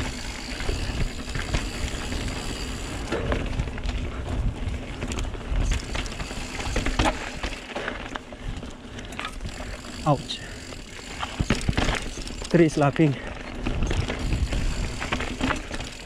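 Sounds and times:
wind rumble on microphone: 0.0 - 7.1, 13.5 - 15.8
bike knocking and rattling: 0.0 - 16.0
bike tyres on dirt and gravel: 0.0 - 16.0.

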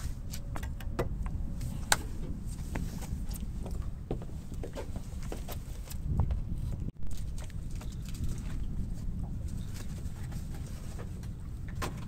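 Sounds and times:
footsteps on boat deck: 0.0 - 8.6
low rumble: 0.0 - 12.0.

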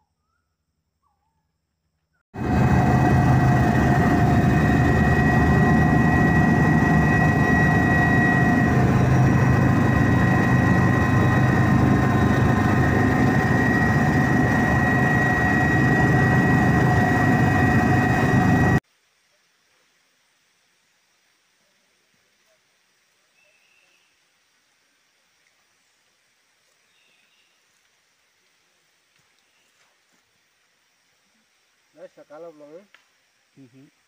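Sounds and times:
aircraft engine droning: 2.4 - 18.8.

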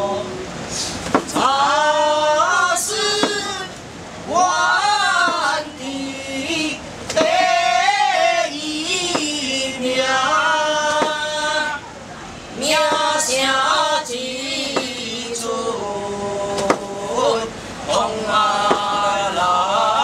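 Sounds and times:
voices chanting: 0.0 - 20.0
sharp knocks: 1.0 - 1.5, 3.2 - 3.5, 9.1 - 9.4, 10.9 - 11.2, 14.7 - 15.0, 18.6 - 19.0.

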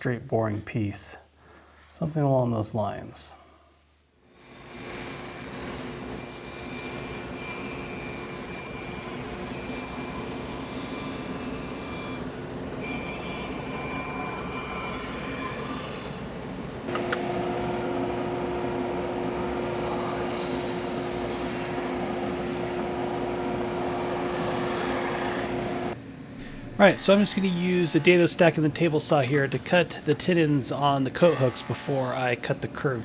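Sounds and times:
bandsaw cutting plywood: 4.4 - 26.0, 26.9 - 28.6, 31.1 - 32.7
belt sander humming: 4.6 - 26.0, 26.7 - 29.0.

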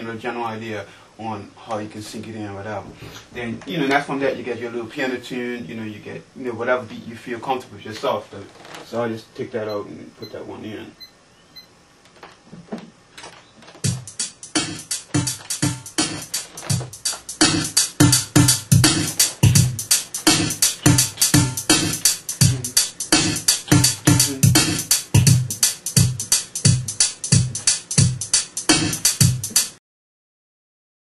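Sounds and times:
drum machine beat: 13.8 - 29.8.

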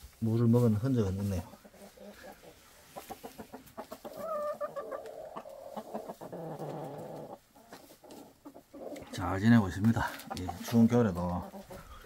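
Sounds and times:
chickens clucking: 0.3 - 12.0
chicken long drawn-out call: 1.8 - 8.9.

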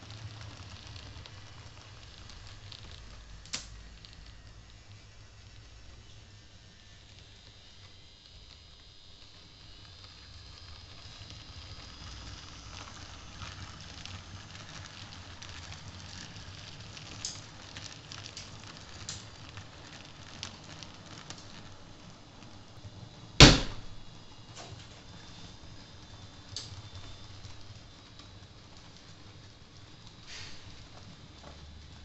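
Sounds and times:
loud knock: 23.4 - 24.0.

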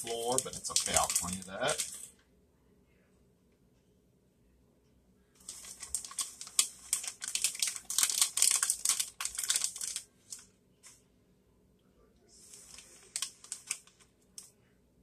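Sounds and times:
plastic bag crinkling: 0.0 - 2.1, 5.4 - 10.4, 12.5 - 14.0.

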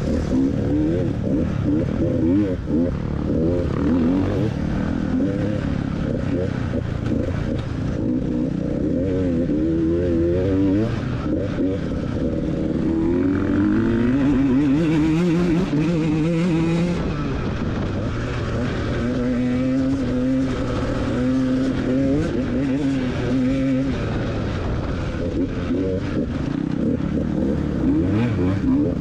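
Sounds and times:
motorcycle engine revving: 0.0 - 29.0.

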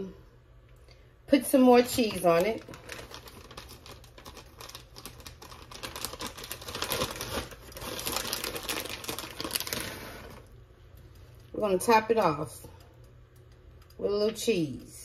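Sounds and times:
shredded cheese crinkling and rustling: 1.8 - 10.5.

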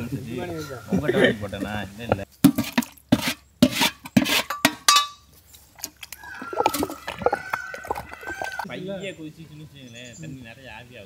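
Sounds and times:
pestle grinding wet paste: 5.8 - 8.7.

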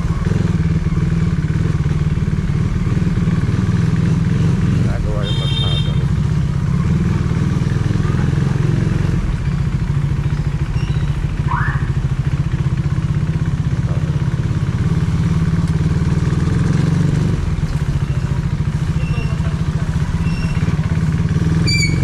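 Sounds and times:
motorcycle engine running: 0.0 - 22.0
brief rising squeak: 10.7 - 11.2, 20.2 - 20.7, 21.6 - 22.0.

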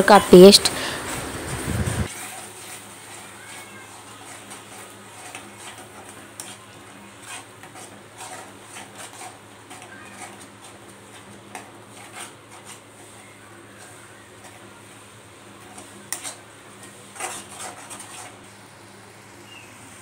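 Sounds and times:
metal spatula scraping a pan: 2.1 - 14.9, 15.6 - 18.5.

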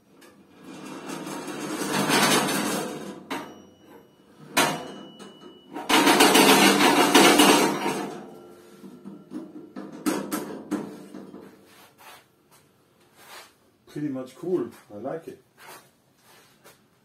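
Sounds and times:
metal scraping and rattling: 0.1 - 3.8, 4.4 - 11.8
sharp metallic clanks: 1.9 - 11.4.

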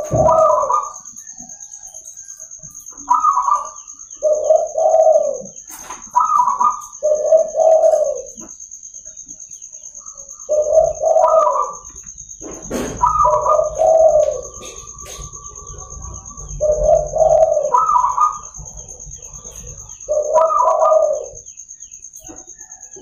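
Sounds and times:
dove cooing: 0.0 - 9.2, 9.9 - 23.0.

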